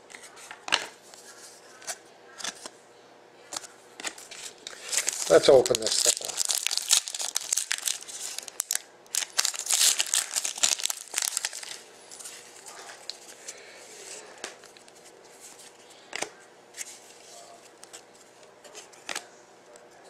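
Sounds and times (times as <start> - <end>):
handling cards: 3.5 - 19.3
foil wrapper tearing and crinkling: 4.6 - 12.3.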